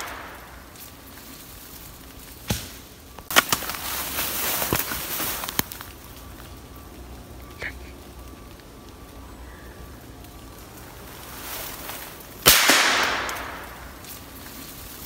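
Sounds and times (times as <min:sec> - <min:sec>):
rifle shot: 0:00.0 - 0:00.6, 0:12.4 - 0:13.7.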